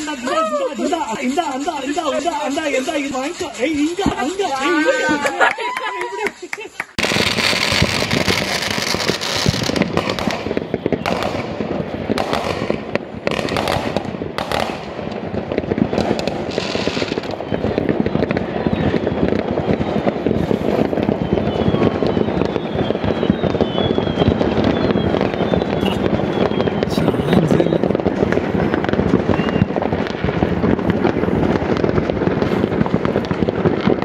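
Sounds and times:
fireworks bangs: 0:00.0 - 0:34.0
fireworks crackling: 0:00.0 - 0:34.0.

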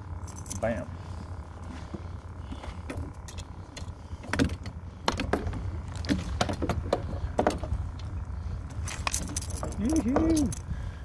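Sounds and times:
steady low rumble: 0:00.0 - 0:11.0
sharp clicks and rattles: 0:08.9 - 0:10.7.

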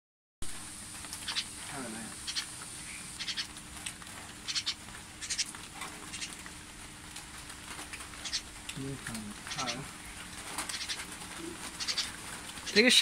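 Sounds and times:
faint steady hum: 0:00.4 - 0:13.0
magpie harsh calls: 0:01.2 - 0:01.5, 0:02.2 - 0:03.5, 0:04.4 - 0:05.5, 0:06.1 - 0:06.4, 0:08.2 - 0:08.5, 0:10.6 - 0:11.1, 0:11.7 - 0:12.9.

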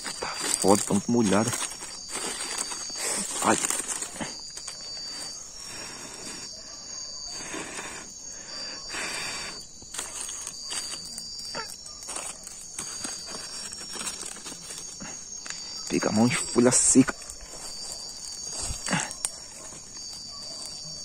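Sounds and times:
rustling and snapping of wet leaves: 0:00.0 - 0:05.4, 0:09.8 - 0:16.0, 0:17.0 - 0:20.8
crickets trilling: 0:00.0 - 0:21.0.

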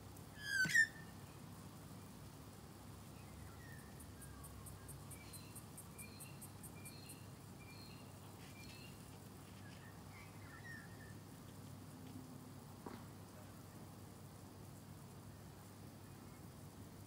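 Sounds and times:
bird whistles: 0:00.4 - 0:01.1.

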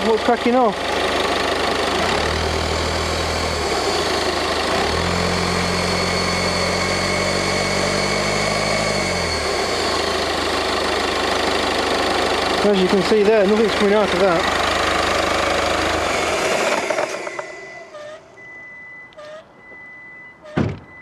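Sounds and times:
diesel engine revving: 0:00.0 - 0:18.5
high whine: 0:01.9 - 0:19.7.

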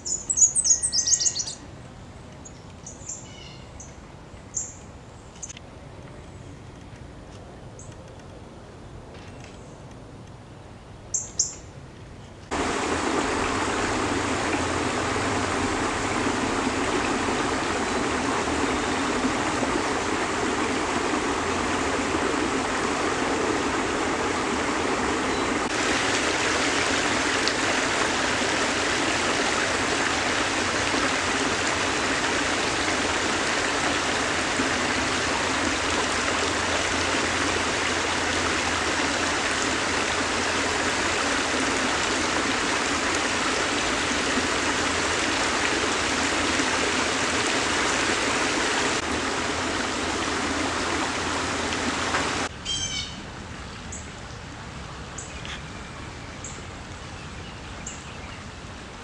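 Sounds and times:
creek water over rocks: 0:12.5 - 0:52.5.

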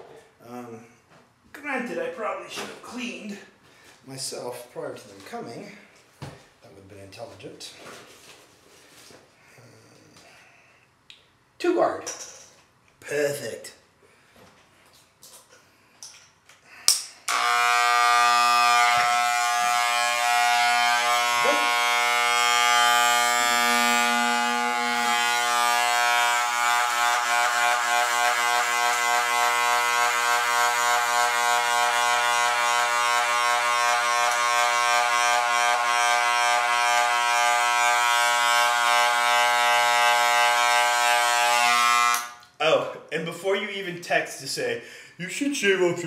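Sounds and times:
hair clippers buzzing: 0:17.2 - 0:42.5.

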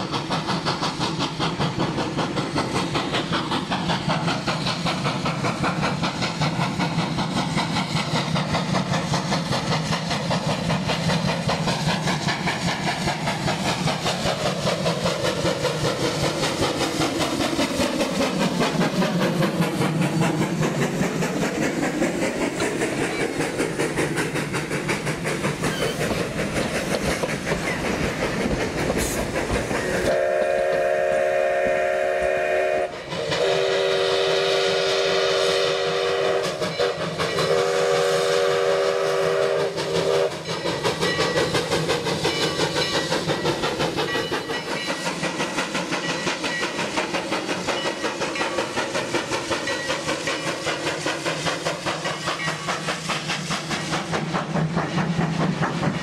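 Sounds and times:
steam locomotive exhaust chuffs: 0:00.0 - 0:56.0
steam whistle long blasts: 0:30.0 - 0:40.5.

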